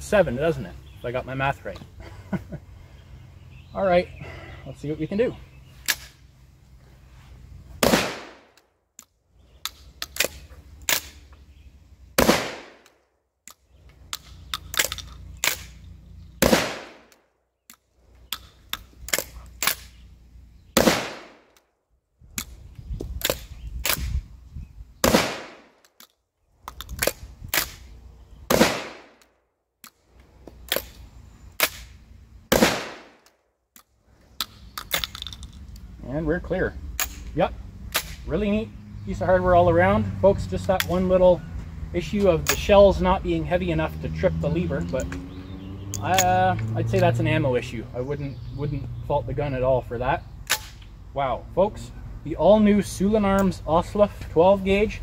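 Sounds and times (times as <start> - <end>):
shotgun shots: 7.8 - 8.6, 12.2 - 12.9, 16.4 - 17.1, 20.8 - 21.5, 25.0 - 25.8, 28.5 - 29.2, 32.5 - 33.2
shotgun action clicking: 8.5 - 11.2, 12.8 - 15.8, 17.1 - 20.0, 33.2 - 35.8.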